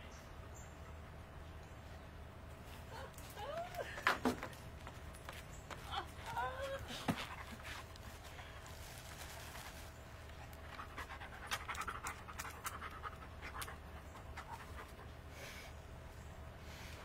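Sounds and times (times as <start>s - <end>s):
dog panting: 10.4s - 15.3s.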